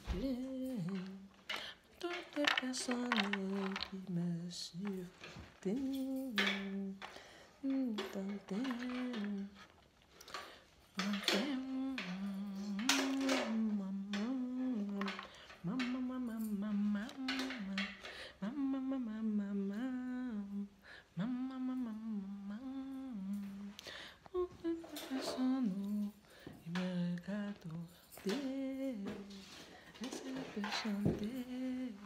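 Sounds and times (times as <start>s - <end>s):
woman humming a tune: 11.0s - 29.4s.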